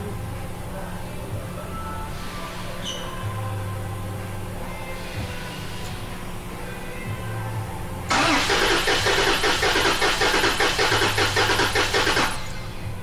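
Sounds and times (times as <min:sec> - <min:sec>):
engine cranking on starter: 0:08.1 - 0:12.6.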